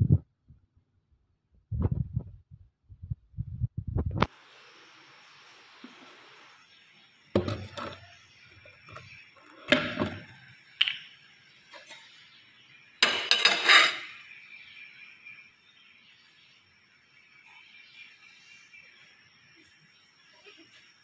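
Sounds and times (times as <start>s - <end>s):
ceramic plates clinking: 9.0s - 10.4s, 13.0s - 14.2s.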